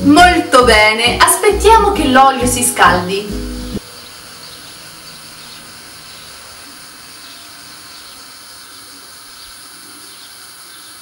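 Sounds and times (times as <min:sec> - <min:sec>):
gas burner hissing: 0:03.4 - 0:11.0.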